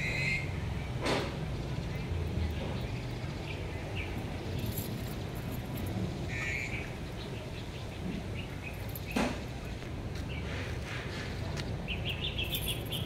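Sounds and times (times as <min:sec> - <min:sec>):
high chirping animal calls: 0:00.0 - 0:00.7, 0:06.3 - 0:08.8.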